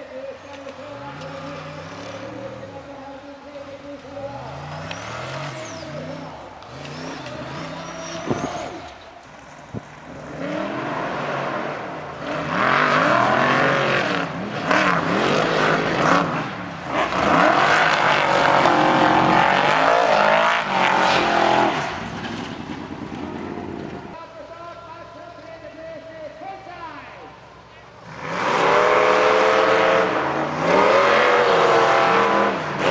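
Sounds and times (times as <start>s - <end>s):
buggy engines revving hard: 0.0s - 2.9s, 3.6s - 24.2s, 27.9s - 32.9s.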